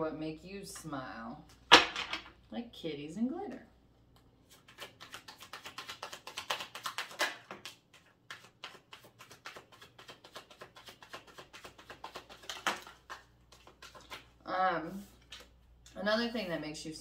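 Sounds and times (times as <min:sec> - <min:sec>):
cards being shuffled: 0:04.4 - 0:15.6.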